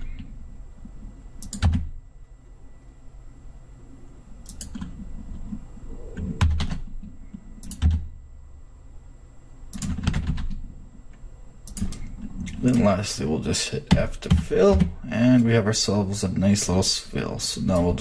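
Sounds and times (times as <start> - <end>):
keyboard and mouse clicking: 1.4 - 1.9, 4.4 - 4.9, 6.2 - 6.9, 7.6 - 8.0, 9.7 - 10.6, 11.6 - 12.9.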